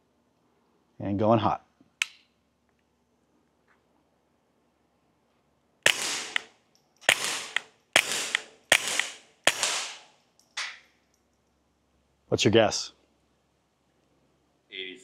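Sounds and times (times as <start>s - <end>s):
suppressed pistol shots: 5.8s - 10.8s.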